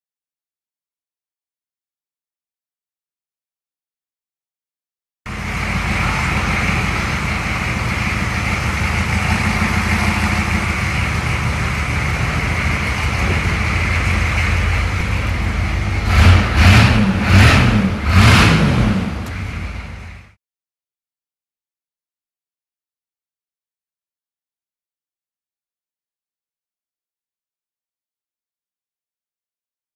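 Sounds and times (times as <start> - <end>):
diesel engine idling and revving: 5.3 - 20.4.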